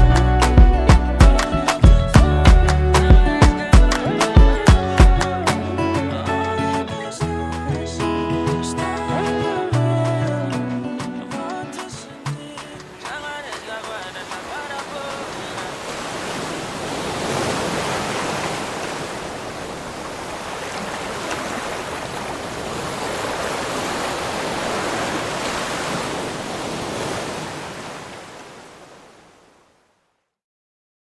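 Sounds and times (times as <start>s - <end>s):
surf-like rushing noise: 11.8s - 29.8s.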